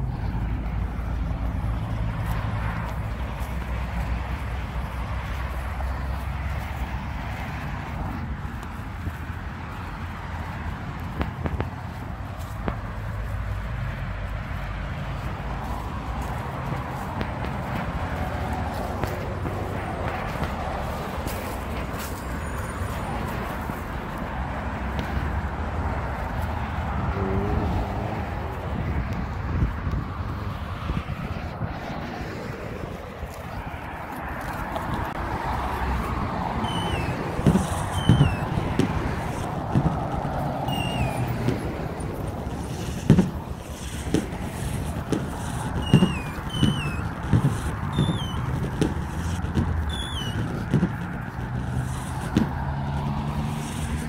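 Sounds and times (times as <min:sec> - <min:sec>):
cars passing on road: 0:00.0 - 0:54.0
wind on microphone: 0:25.0 - 0:54.0
footsteps thudding: 0:36.0 - 0:53.1
wavering high chirps: 0:36.6 - 0:38.6, 0:40.7 - 0:41.3, 0:45.8 - 0:47.1, 0:47.9 - 0:48.5, 0:49.9 - 0:50.4.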